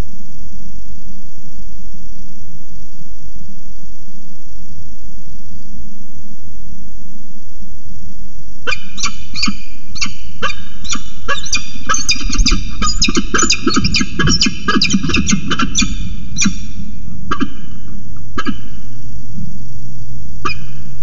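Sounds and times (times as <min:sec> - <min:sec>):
falcon harsh calls: 0:08.7 - 0:17.8
low rumble: 0:15.4 - 0:20.4.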